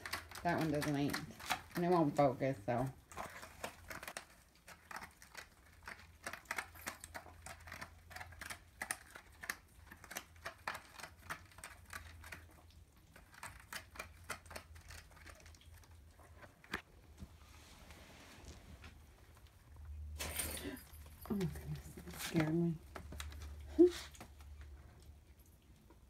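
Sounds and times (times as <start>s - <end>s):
kitten scratching cardboard: 0.0s - 2.4s, 3.1s - 15.6s.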